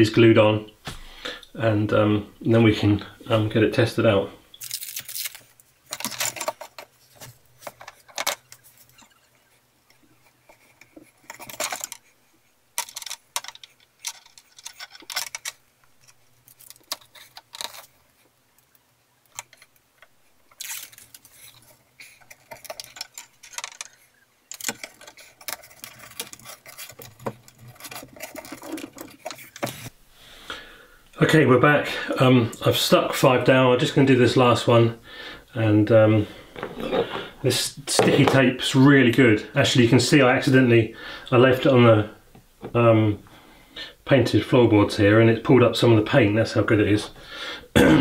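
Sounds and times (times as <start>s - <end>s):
tape rustling: 4.6s - 12.1s, 12.7s - 30.0s.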